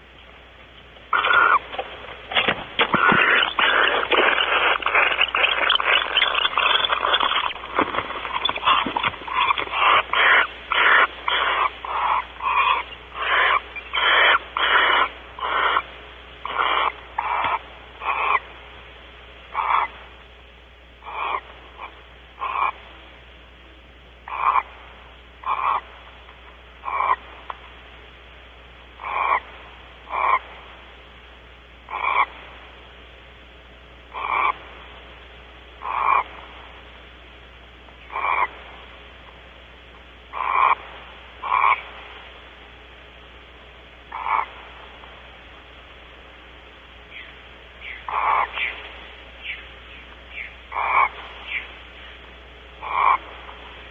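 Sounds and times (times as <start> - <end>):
owl hissing calls: 1.1 - 1.8, 2.8 - 18.6, 19.5 - 20.1, 21.0 - 23.0, 24.2 - 26.1, 26.8 - 27.5, 28.9 - 30.8, 31.8 - 32.5, 34.1 - 34.8, 35.7 - 36.8, 38.0 - 38.9, 40.2 - 42.4, 44.0 - 45.5, 47.0 - 53.9.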